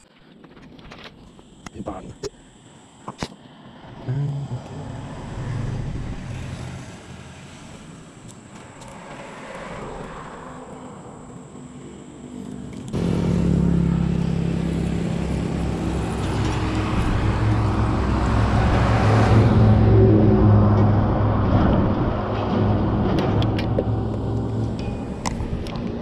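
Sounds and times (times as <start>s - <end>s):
vehicle engine running: 3.8s - 8.7s, 11.1s - 26.0s.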